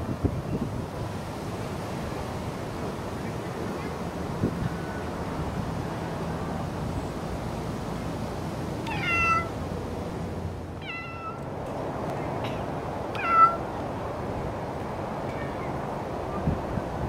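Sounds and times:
cat meowing: 8.8s - 9.6s, 10.8s - 11.4s, 12.5s - 13.6s.

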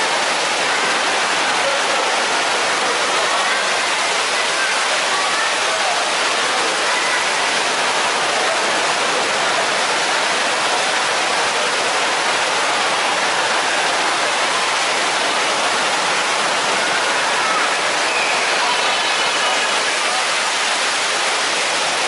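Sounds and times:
water pouring into pool: 0.0s - 22.0s.

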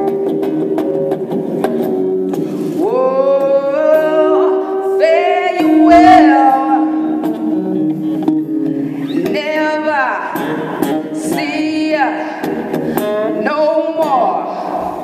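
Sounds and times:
electric guitar sliding notes: 0.0s - 15.0s
woman vocalising: 2.8s - 7.3s.

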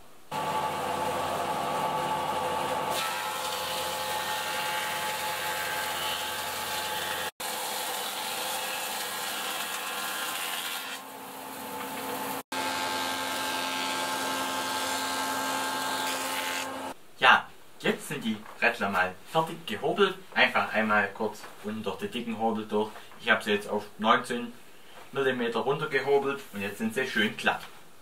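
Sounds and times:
thickness planer whine: 0.3s - 11.0s, 11.8s - 17.0s.

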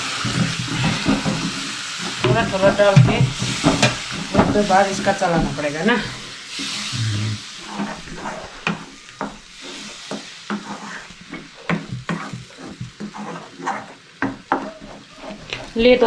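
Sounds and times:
mixture sizzling in a pan: 0.0s - 16.0s
spoon scraping a steel pan: 7.6s - 15.7s.

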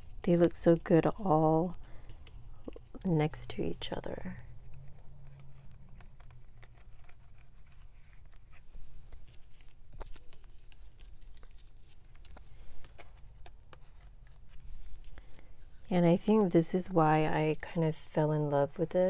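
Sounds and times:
low steady hum: 0.0s - 19.0s
paper rustling: 3.7s - 16.6s.

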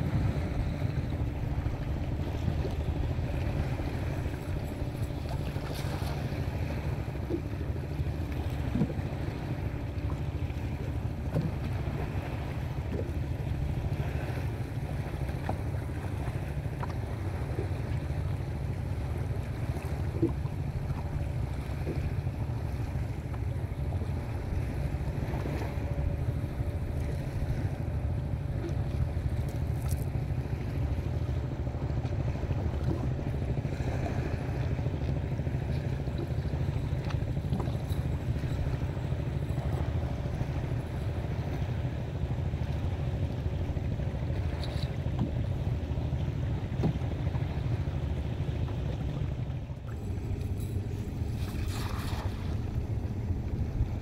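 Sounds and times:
shallow water lapping: 0.0s - 54.0s
wind buffeting microphone: 49.8s - 54.0s.

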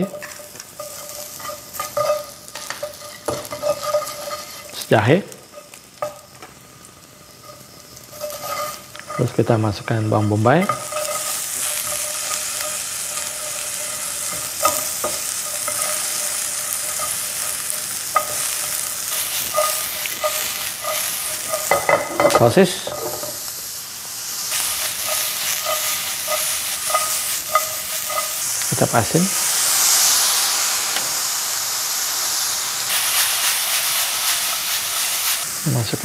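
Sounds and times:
spatula scraping pan: 0.0s - 6.3s, 7.3s - 23.4s, 24.5s - 29.1s
vegetables sizzling in oil: 0.0s - 36.0s.

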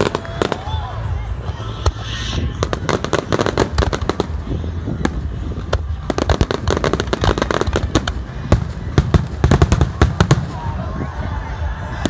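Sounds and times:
firework bangs and cracks: 1.4s - 10.8s.

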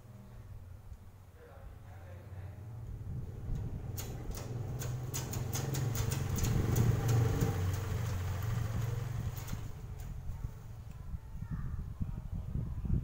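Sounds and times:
vehicle engine passing: 2.3s - 10.6s
sharp clicks and taps: 3.5s - 8.2s.

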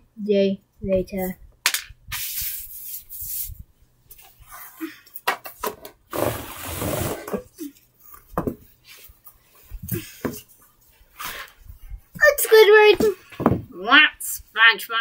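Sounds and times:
toys rustling and knocking: 5.1s - 6.0s, 7.1s - 8.7s, 12.1s - 13.7s.

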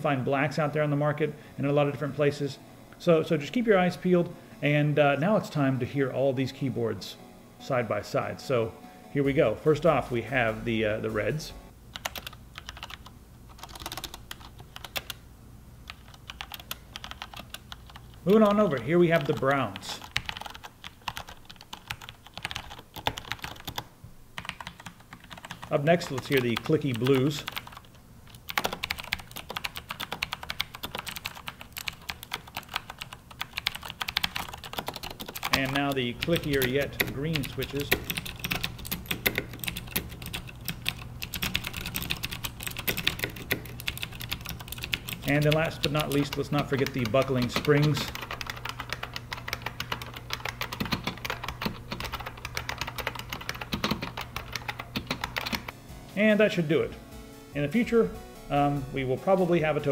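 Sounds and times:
fast keyboard typing clicks: 12.0s - 15.2s, 15.9s - 55.8s.

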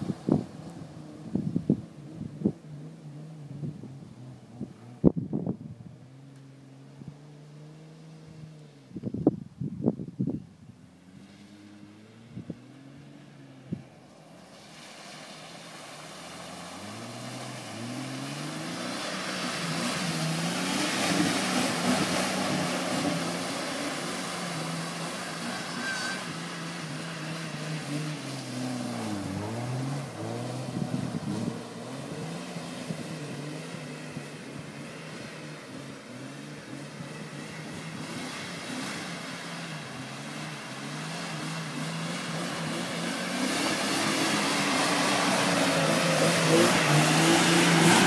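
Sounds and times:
splashing through mud and water: 11.0s - 48.0s
engine revving: 16.4s - 34.1s, 40.1s - 48.0s.

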